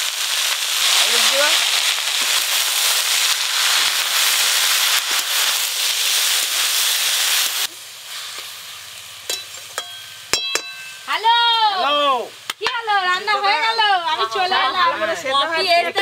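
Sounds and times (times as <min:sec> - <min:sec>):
vegetables sizzling in hot oil: 0:00.0 - 0:16.0
metal spatula clinking on wok: 0:09.3 - 0:11.0.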